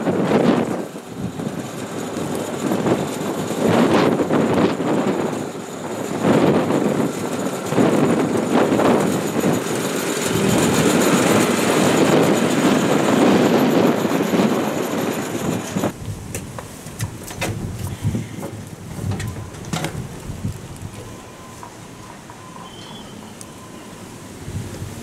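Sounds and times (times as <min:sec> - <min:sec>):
farm vehicle engine rattling: 0:00.0 - 0:24.6.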